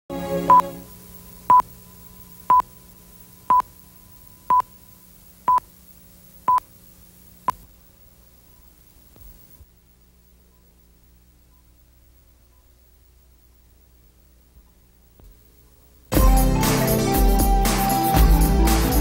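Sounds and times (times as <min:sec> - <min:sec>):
faint steady hum: 0:00.1 - 0:18.2
short high-pitched beeps: 0:03.5 - 0:03.7, 0:04.4 - 0:04.7.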